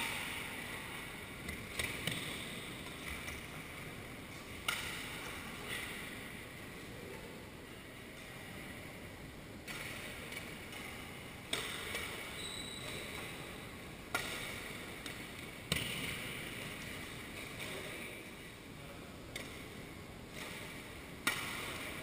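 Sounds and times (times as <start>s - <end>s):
rackets smacking shuttlecock: 0.0s - 3.8s, 4.6s - 6.3s, 9.6s - 13.4s, 14.1s - 18.0s, 19.3s - 22.0s
steady hall hiss: 0.0s - 22.0s.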